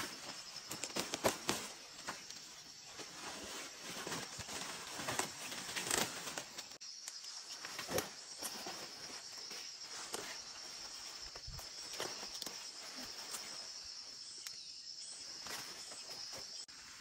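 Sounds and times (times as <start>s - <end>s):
leaves rustling and stems snapping: 0.0s - 13.5s
insects trilling: 0.0s - 17.0s.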